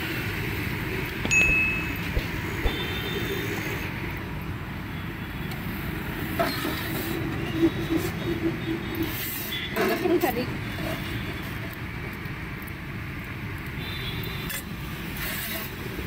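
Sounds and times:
road traffic rumble: 0:00.0 - 0:16.0
high beep: 0:01.3 - 0:03.0.

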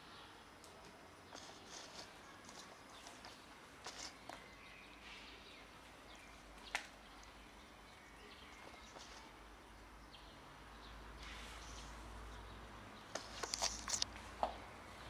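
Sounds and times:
quiet hiss: 0:00.0 - 0:15.0
cats chewing: 0:00.6 - 0:04.5.

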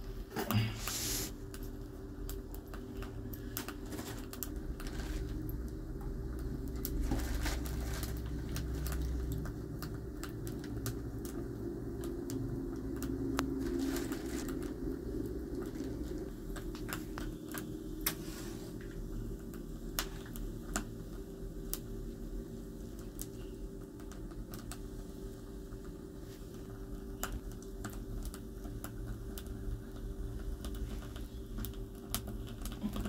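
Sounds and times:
low steady rumble: 0:00.0 - 0:33.0
plastic bag crackling: 0:03.7 - 0:05.6, 0:06.7 - 0:09.4, 0:13.4 - 0:14.8.

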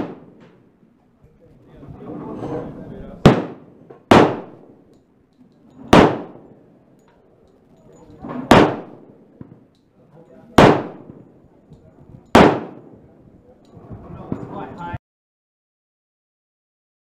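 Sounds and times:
pistol shots with ringing echo: 0:00.0 - 0:00.6, 0:03.2 - 0:05.0, 0:05.8 - 0:07.0, 0:08.0 - 0:09.8, 0:10.4 - 0:11.4, 0:12.2 - 0:13.2.

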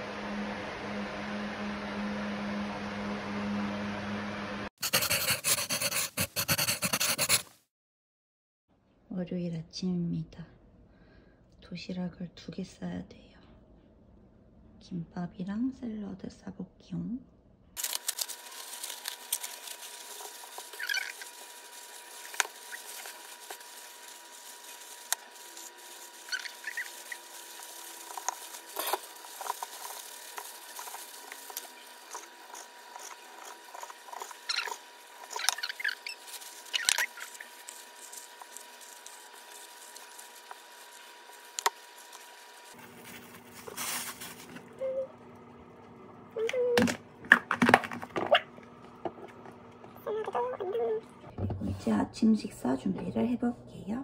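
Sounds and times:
plastic gloves crinkling: 0:17.8 - 0:44.8.

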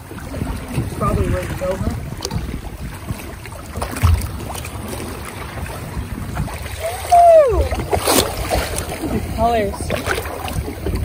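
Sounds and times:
low rumble: 0:00.0 - 0:11.0
water alongside boat: 0:00.0 - 0:11.0
wind: 0:00.0 - 0:11.0
person whooping: 0:06.8 - 0:07.8.

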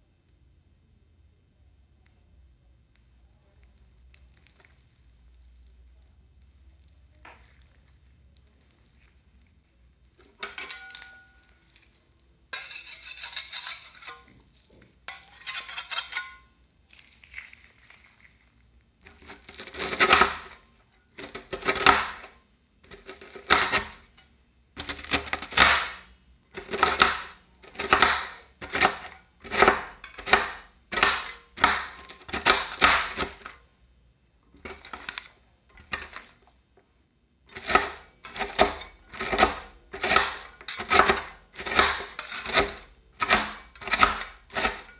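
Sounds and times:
metal spatulas scraping steel plate: 0:10.4 - 0:11.4, 0:12.5 - 0:14.3, 0:15.1 - 0:16.5, 0:37.5 - 0:44.9.

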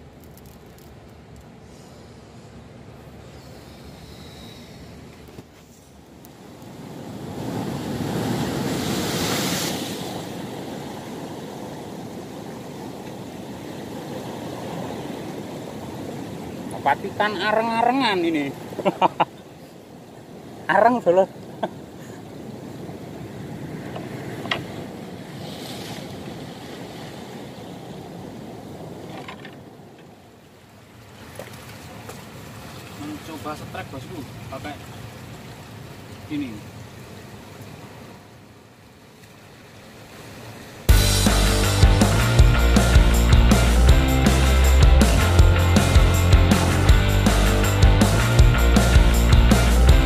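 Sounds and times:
waves crashing on rocks: 0:01.2 - 0:43.9
churning water: 0:04.8 - 0:50.0.

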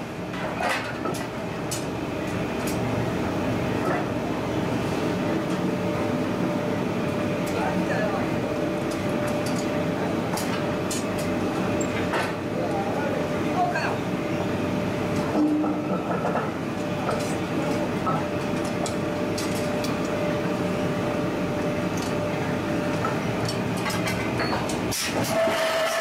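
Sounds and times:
machinery running hum: 0:00.0 - 0:26.0.

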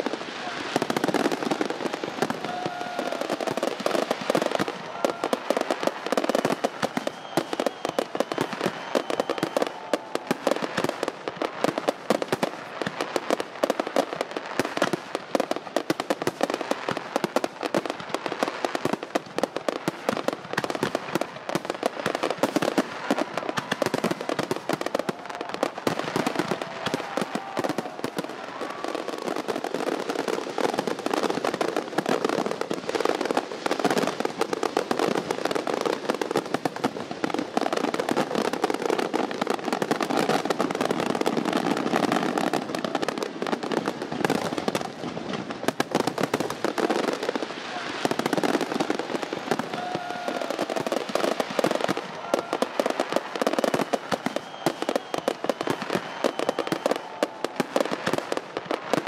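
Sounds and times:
fireworks crackling and banging: 0:00.0 - 0:59.0
firework whistles: 0:00.3 - 0:10.8, 0:47.9 - 0:57.6.

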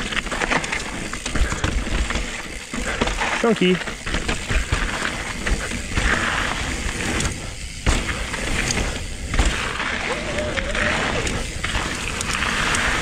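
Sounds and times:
bike rattling and knocking: 0:00.0 - 0:13.0
tyres crunching over loose rock: 0:00.0 - 0:13.0
wind rumbling on microphone: 0:00.0 - 0:13.0.

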